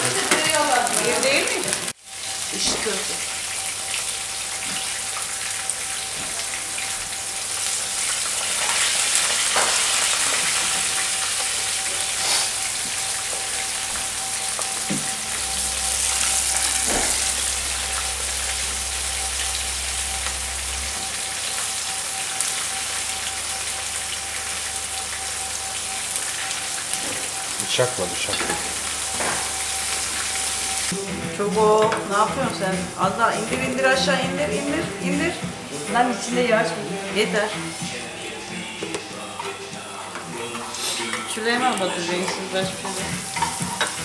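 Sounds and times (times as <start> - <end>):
oil popping: 0.0 - 30.9
batter sizzling in hot oil: 0.0 - 32.3, 37.8 - 44.0.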